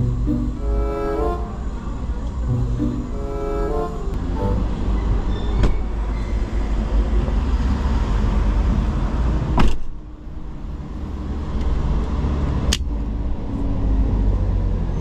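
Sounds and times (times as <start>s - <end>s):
low rumble of traffic: 0.0s - 15.0s
car door slamming shut: 9.6s - 9.9s.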